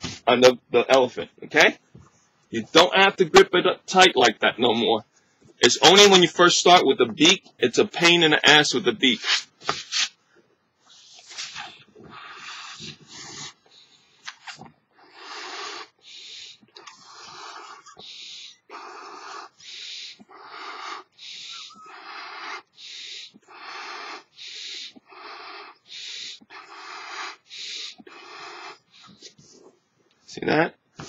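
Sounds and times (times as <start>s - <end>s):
breaths blowing up balloon: 10.9s - 29.4s.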